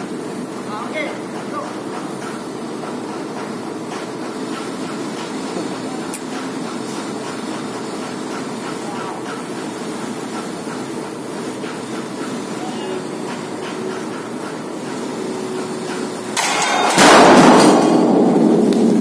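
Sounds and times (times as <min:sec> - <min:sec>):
heavy machinery droning: 0:00.0 - 0:19.0.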